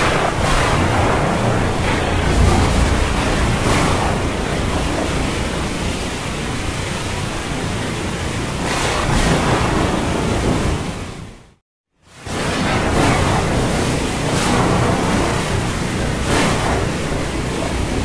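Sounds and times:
low rumble: 0.0 - 11.4
stormy sea wash: 0.0 - 18.0.

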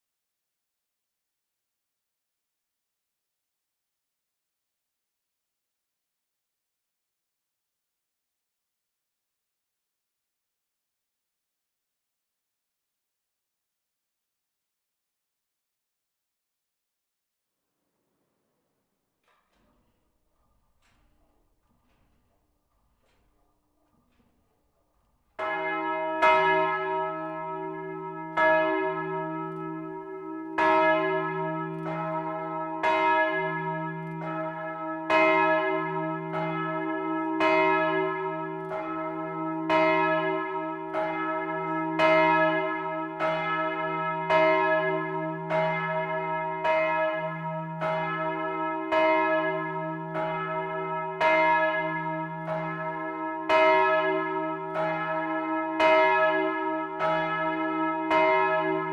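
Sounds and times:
church bells ringing: 25.4 - 58.9.

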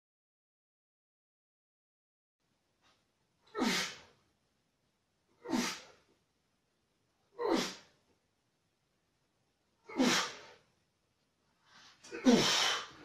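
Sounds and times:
man exhaling sharply: 12.1 - 13.0.

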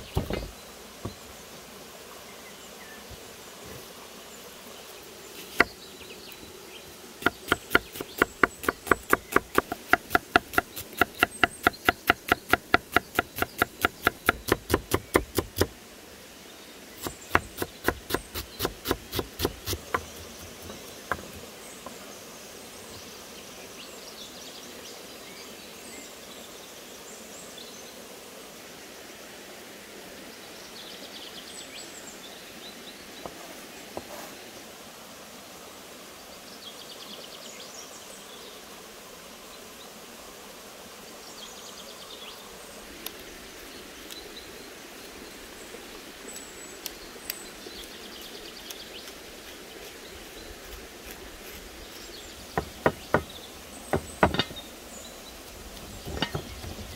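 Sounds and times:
knife chopping on wooden board: 0.0 - 1.2, 5.5 - 5.8, 7.2 - 15.7, 17.0 - 21.4, 52.5 - 53.3, 53.9 - 54.6, 56.0 - 56.9.

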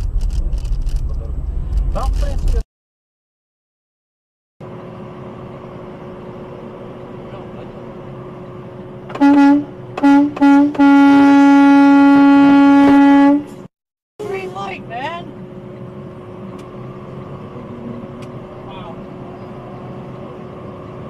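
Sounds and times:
road noise: 0.0 - 2.7, 4.6 - 21.0
car horn honking: 9.1 - 13.6.

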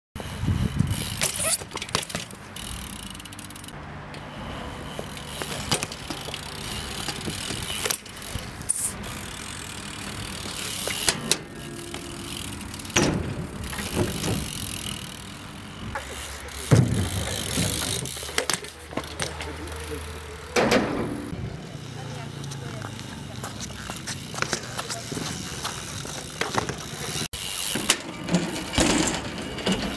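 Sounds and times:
bike tyres rolling on concrete: 0.2 - 29.9
bike landing knocks: 10.4 - 14.9, 16.6 - 19.5, 20.5 - 21.3.

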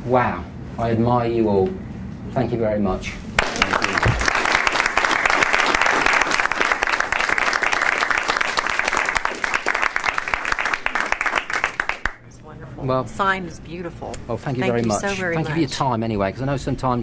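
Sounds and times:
audience applauding: 3.4 - 12.2.

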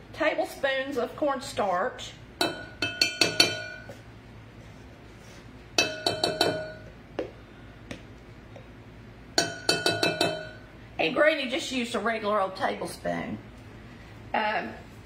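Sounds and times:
spoon clinking on glass cup: 9.4 - 10.6.

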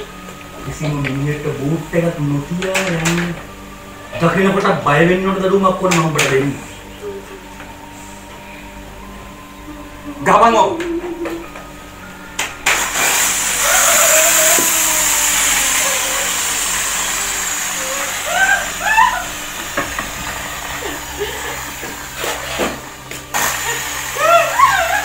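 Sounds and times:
high tone gliding downward: 0.0 - 25.0
loud rushing hiss: 12.7 - 25.0
person strained cries: 13.6 - 16.5, 17.9 - 19.4.

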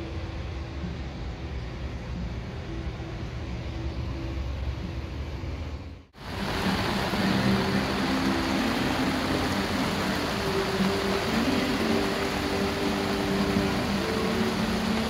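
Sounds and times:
low steady rumble: 0.0 - 15.0
heavy rain pouring: 6.2 - 15.0.

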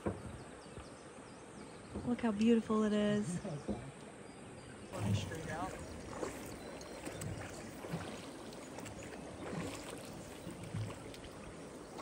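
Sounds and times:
river water rushing: 4.9 - 12.0.

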